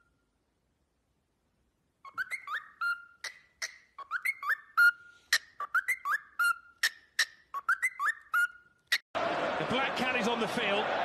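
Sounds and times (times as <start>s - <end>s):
cockatiel whistling: 2.0s - 9.0s.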